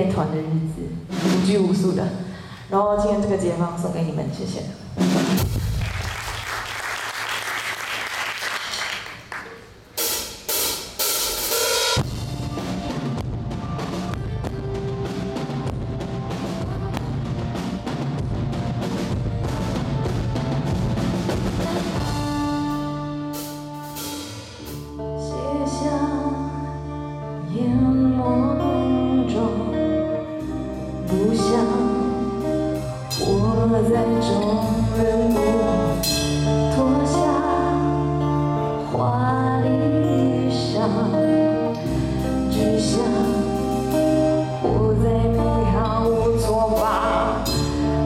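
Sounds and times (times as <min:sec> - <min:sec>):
live rock band playing: 0:04.9 - 0:06.7, 0:10.0 - 0:48.0
steady drum beat: 0:05.0 - 0:06.8, 0:09.9 - 0:24.9
held guitar and bass chords: 0:12.0 - 0:48.0.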